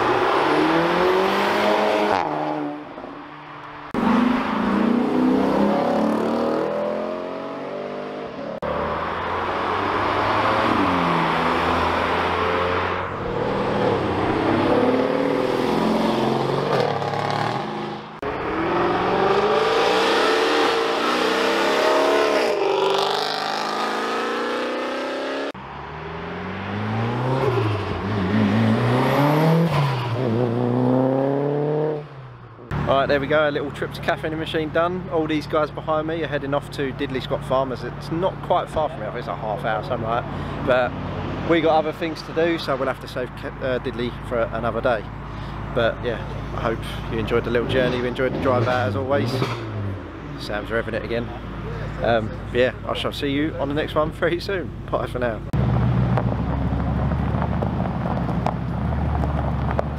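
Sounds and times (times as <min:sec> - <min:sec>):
cars accelerating hard past: 0:00.0 - 0:32.9.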